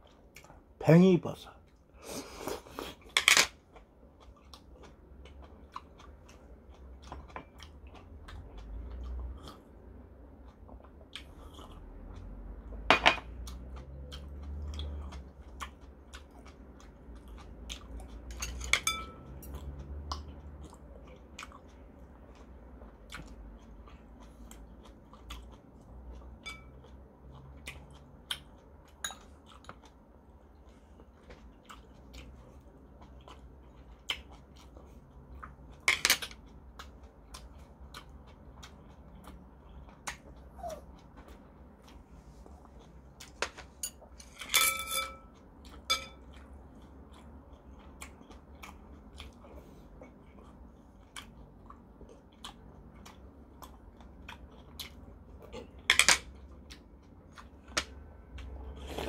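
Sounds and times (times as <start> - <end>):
man chewing food: 0.0 - 0.8, 1.6 - 44.5, 45.1 - 59.0
metal spoon clinking on bowls: 12.9 - 13.2, 18.3 - 19.3, 26.4 - 26.8, 43.8 - 46.2.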